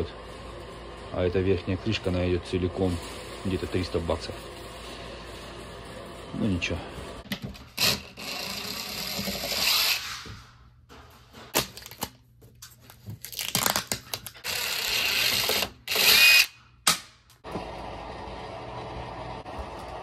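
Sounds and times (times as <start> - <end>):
cordless drill driving screws: 7.8 - 10.2, 14.4 - 16.5.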